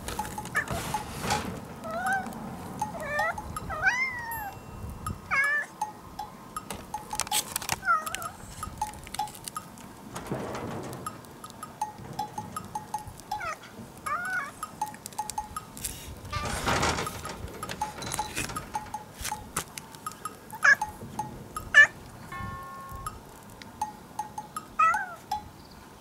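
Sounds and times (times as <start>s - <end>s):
cat meowing: 1.8s - 4.5s, 7.8s - 8.4s, 24.8s - 25.2s.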